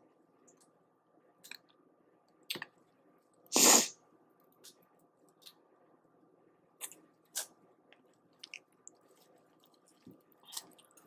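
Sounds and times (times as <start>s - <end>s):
mouth clicks and chewing: 6.8s - 11.0s.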